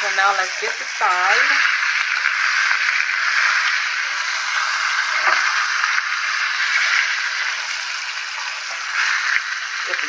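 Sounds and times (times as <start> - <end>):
meat sizzling in hot oil: 0.0 - 10.0.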